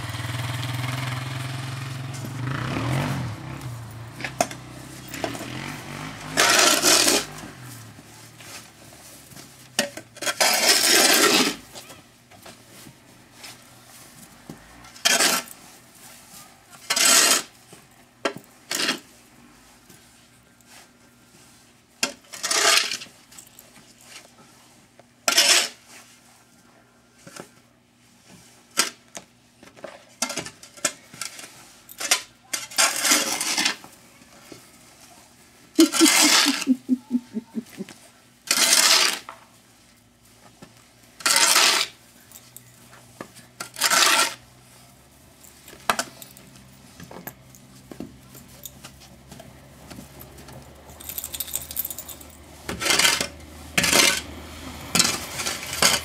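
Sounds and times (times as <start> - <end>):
dog collar tags clinking: 50.1 - 52.4.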